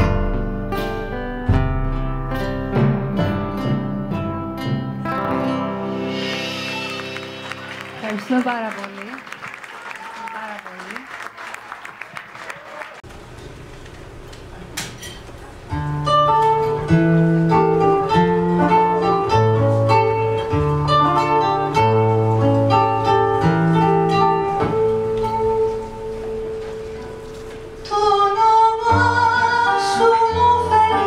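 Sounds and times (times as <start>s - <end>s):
acoustic guitar playing: 0.0s - 9.2s, 15.5s - 31.0s.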